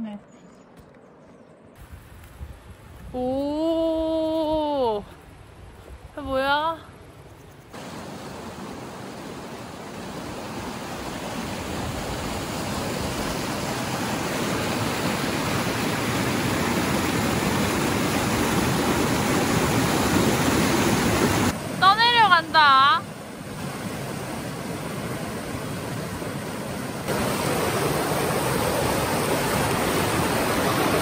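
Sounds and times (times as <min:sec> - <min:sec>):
rushing stream water: 0:07.7 - 0:31.0.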